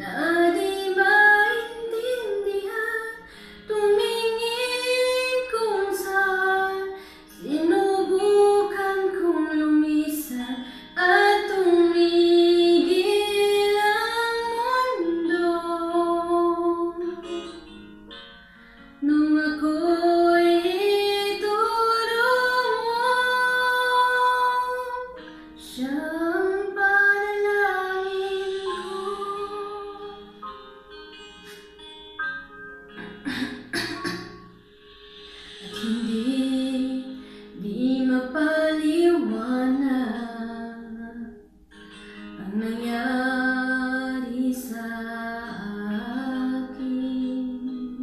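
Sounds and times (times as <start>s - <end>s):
woman singing long notes: 25.8s - 30.4s.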